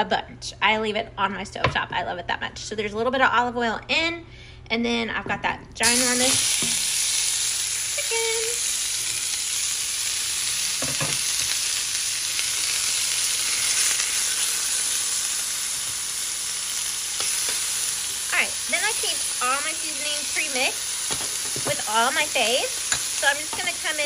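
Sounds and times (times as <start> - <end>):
chicken sizzling in a skillet: 5.8 - 24.0.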